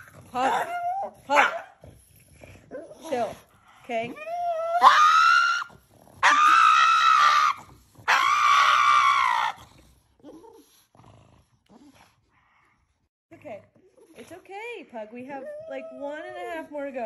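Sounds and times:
dog screaming: 4.5s - 9.6s.

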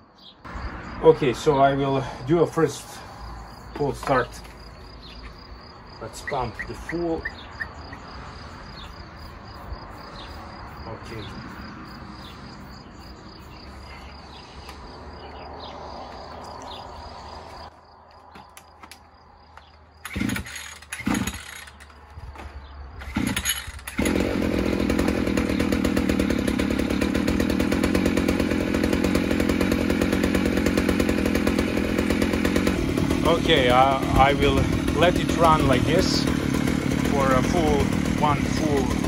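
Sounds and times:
brush cutter engine running: 20.0s - 22.2s, 23.0s - 39.0s
recoil starter pulls: 20.0s - 39.0s.

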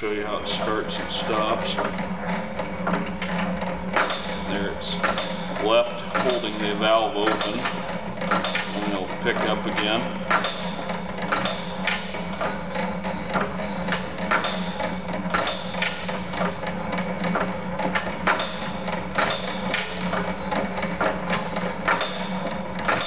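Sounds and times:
steady engine hum: 0.0s - 23.0s
engine valve linkage clacking: 0.5s - 23.0s.

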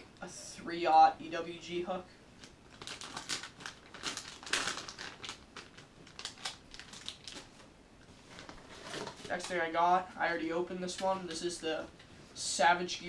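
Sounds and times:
plastic packaging crinkling: 2.4s - 7.6s.

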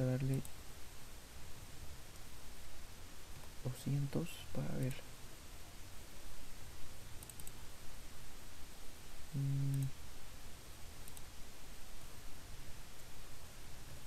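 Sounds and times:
low steady hum: 0.0s - 14.0s
computer mouse clicks: 0.2s - 0.6s, 7.2s - 7.6s, 9.6s - 9.9s, 11.0s - 11.3s
man humming: 9.3s - 9.9s.

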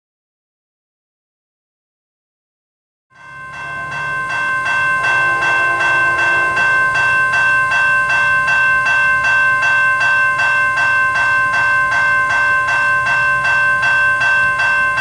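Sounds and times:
crossing bell clanging: 3.2s - 15.0s.

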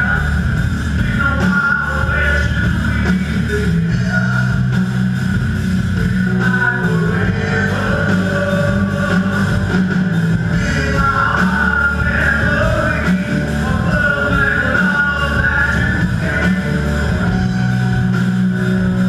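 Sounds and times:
bass guitar: 0.0s - 19.0s
drum kit: 0.0s - 19.0s
electric guitars: 0.0s - 19.0s
person singing: 6.0s - 18.2s.

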